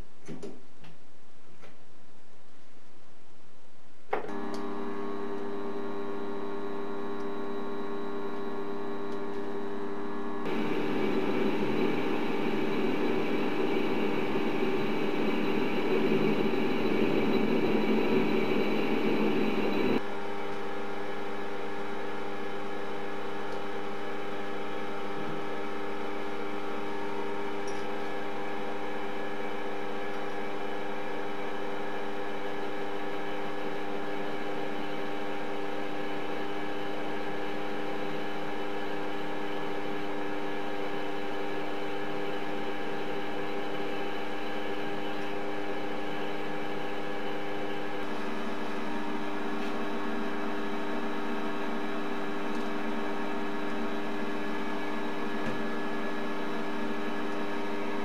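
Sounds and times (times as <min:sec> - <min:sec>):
metal lathe humming: 0:04.3 - 0:20.0
loud rough machine noise: 0:10.4 - 0:20.0.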